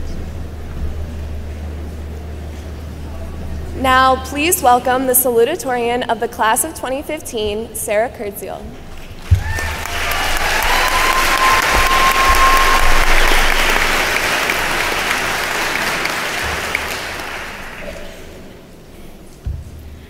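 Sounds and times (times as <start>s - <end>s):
audience applause: 9.2s - 18.6s.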